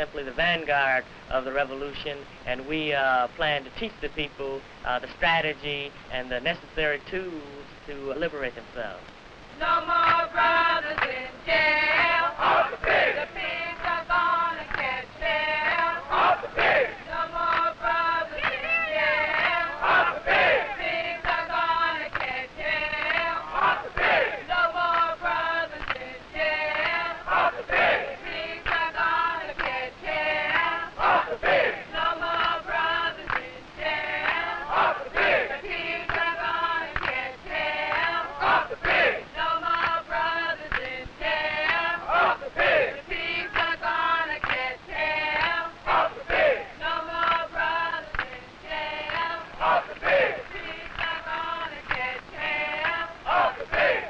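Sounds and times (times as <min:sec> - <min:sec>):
crowd chanting in unison: 0:09.6 - 0:54.0.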